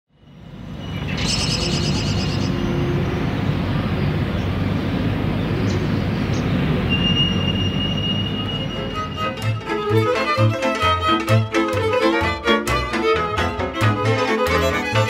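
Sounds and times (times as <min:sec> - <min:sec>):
low rumbling noise: 0:00.3 - 0:11.1
thin high whine: 0:06.9 - 0:09.6.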